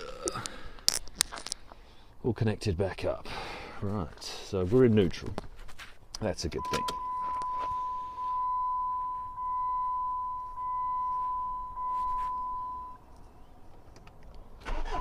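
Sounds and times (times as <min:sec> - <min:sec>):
dashboard warning chime: 0:06.6 - 0:13.0.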